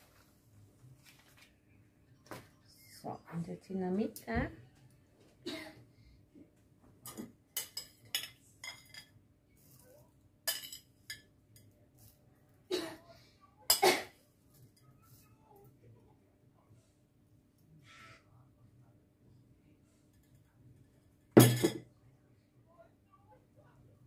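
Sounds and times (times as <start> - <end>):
metal spoon clinking in glass bowl: 7.1 - 9.1, 10.5 - 11.7.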